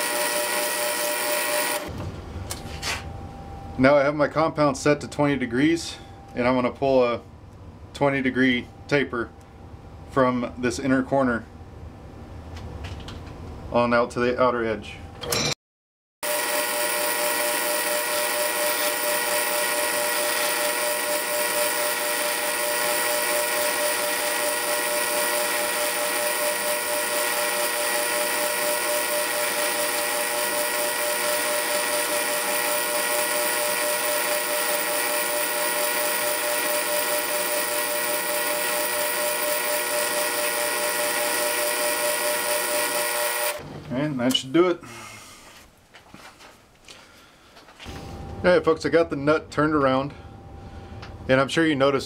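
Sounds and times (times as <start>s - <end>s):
lathe running: 0.0s - 1.9s, 16.2s - 43.6s.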